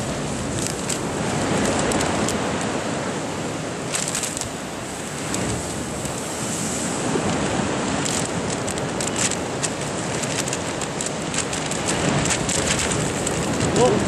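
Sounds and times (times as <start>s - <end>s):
wind: 0.0s - 14.0s
rapid pattering of light ticks: 0.4s - 2.7s, 3.9s - 4.6s, 5.2s - 6.3s, 8.0s - 14.0s.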